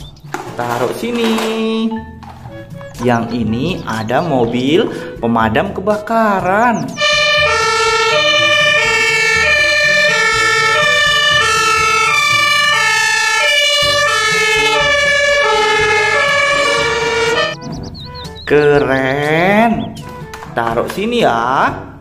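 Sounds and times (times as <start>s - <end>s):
truck engine rumbling: 0.0s - 21.0s
two-tone siren: 2.5s - 3.3s, 7.0s - 17.7s.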